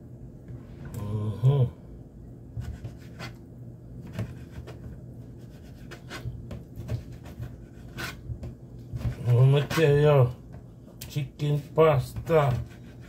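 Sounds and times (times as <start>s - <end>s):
knife tapping and scraping board: 2.6s - 3.4s, 4.0s - 11.2s, 12.0s - 13.0s.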